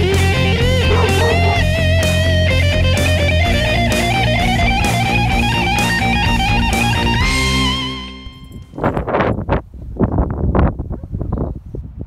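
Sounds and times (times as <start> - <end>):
wind buffeting microphone: 8.6 - 12.0.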